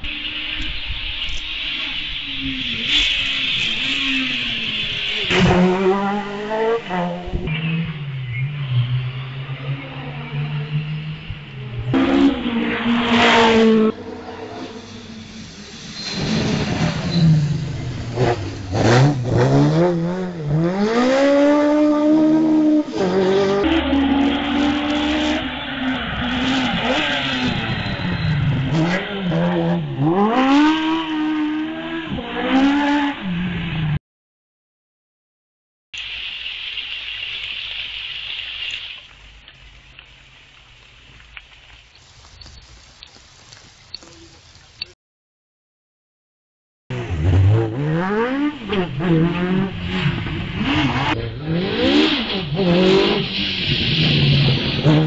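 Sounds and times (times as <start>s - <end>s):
race car engine revving: 2.8s - 33.3s, 46.9s - 55.0s.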